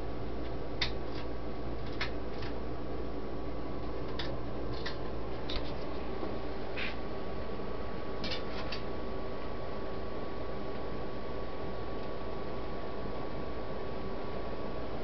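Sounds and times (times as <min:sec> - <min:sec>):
ceiling fan motor hum: 0:00.0 - 0:15.0
faint steady whine: 0:00.0 - 0:15.0
metal fan blades clicking: 0:00.4 - 0:02.6, 0:03.8 - 0:05.9, 0:08.2 - 0:08.9.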